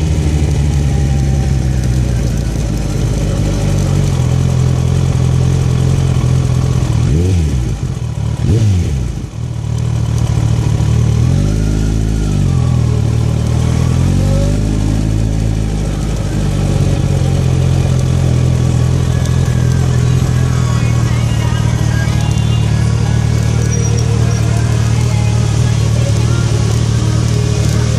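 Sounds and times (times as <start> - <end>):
motorcycle engine running: 0.0 - 27.9
motorcycle throttle blips: 14.6 - 27.9.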